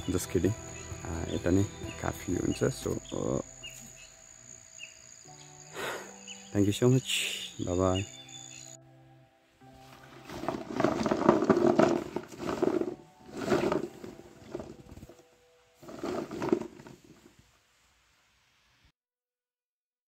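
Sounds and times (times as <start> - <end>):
chillies rustling in plastic tub: 10.0 - 15.2, 15.8 - 17.3.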